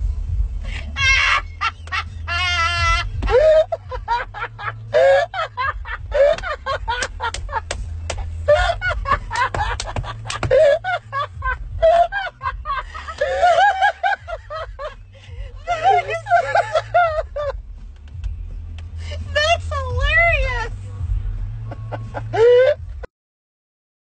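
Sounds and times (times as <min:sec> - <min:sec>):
low rumble: 0:00.0 - 0:23.1
people laughing: 0:00.8 - 0:17.6.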